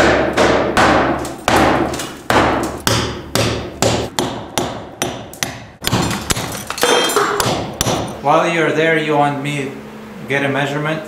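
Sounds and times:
ringing hammer blows: 0:06.8 - 0:08.2.

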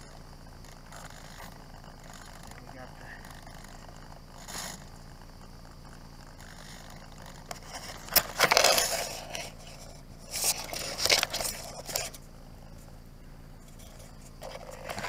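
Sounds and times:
scraping and rustling of foam airframe: 0:06.7 - 0:12.9, 0:13.6 - 0:15.0.

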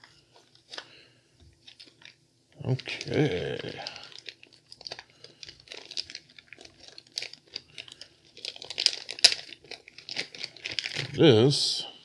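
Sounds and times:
packaging crinkling and rustling: 0:00.0 - 0:11.6.

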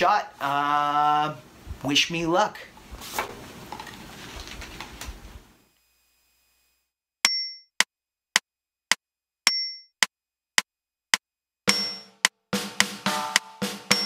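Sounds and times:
faint room noise: 0:00.0 - 0:05.9
metronome beep: 0:11.7 - 0:12.3, 0:13.1 - 0:14.0
metronome clicks: 0:11.7 - 0:14.0.

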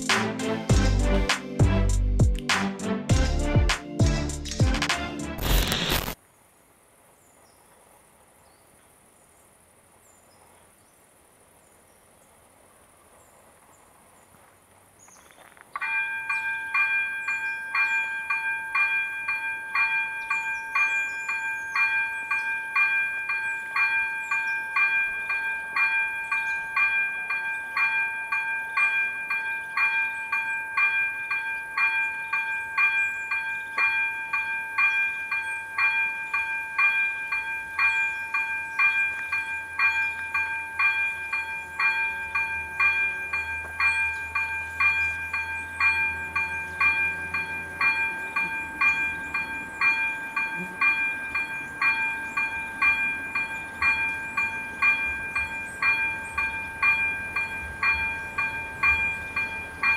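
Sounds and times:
level crossing warning bell: 0:15.8 - 0:59.9.

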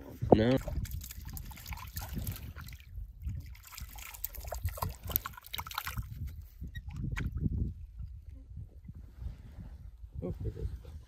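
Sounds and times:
water splashing softly: 0:00.5 - 0:08.4.

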